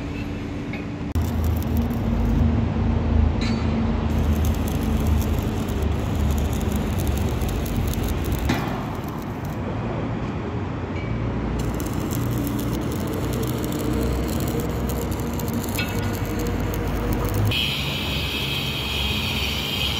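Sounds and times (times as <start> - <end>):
welding arc crackling: 1.1 - 2.6, 4.0 - 9.8, 11.5 - 18.3.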